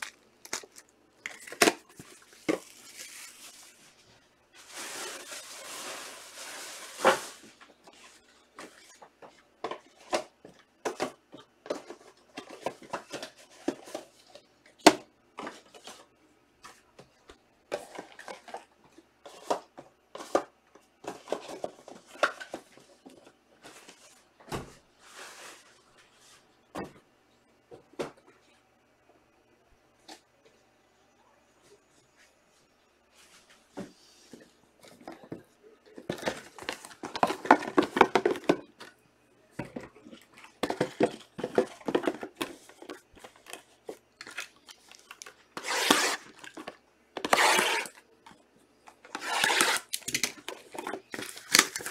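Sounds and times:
wrapper rustling: 0.0s - 8.5s, 49.0s - 51.9s.

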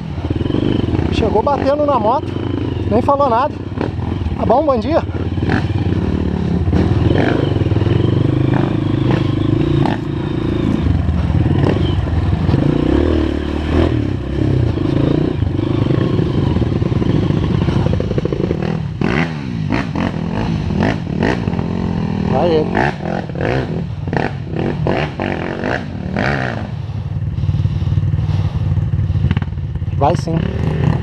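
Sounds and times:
motorcycle clattering over bumps: 0.0s - 20.2s, 28.0s - 31.0s
motorcycle engine running: 0.0s - 31.0s.

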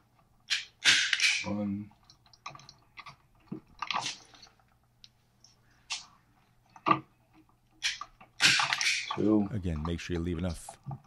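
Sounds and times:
wire stripper clicking and crunching: 6.7s - 11.0s.

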